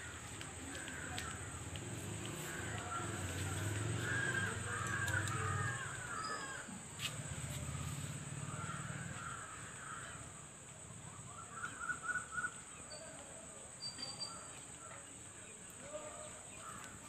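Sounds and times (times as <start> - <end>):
crows cawing: 0.0 - 6.8, 8.4 - 10.4, 16.5 - 17.0.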